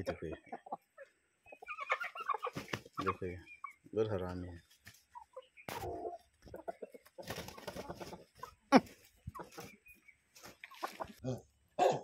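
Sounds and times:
chickens clucking and squawking: 0.0s - 12.0s
wings flapping: 2.4s - 3.0s, 7.1s - 9.8s.

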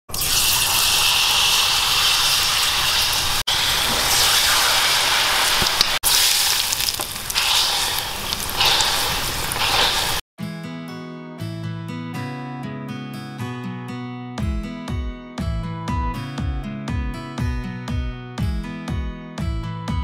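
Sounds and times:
hot oil sizzling: 0.1s - 10.2s.

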